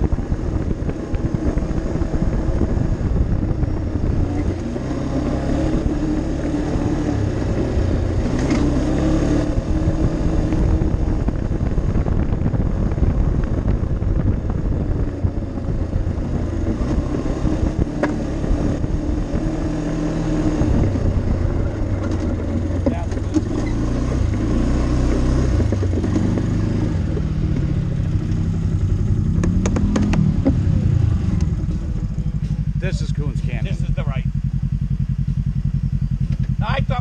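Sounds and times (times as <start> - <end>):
atv engine running: 0.0 - 37.0.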